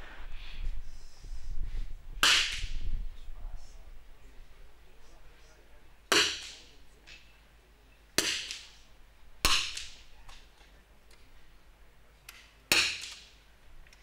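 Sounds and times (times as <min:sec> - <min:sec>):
rifle shots with echo: 0:08.2 - 0:08.8, 0:09.4 - 0:10.1.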